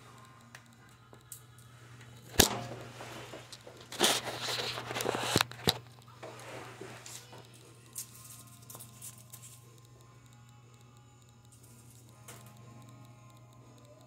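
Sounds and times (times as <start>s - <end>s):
clicks: 0.0s - 14.0s
steady low hum: 0.0s - 14.0s
rubbing and scraping on phone: 2.8s - 7.5s.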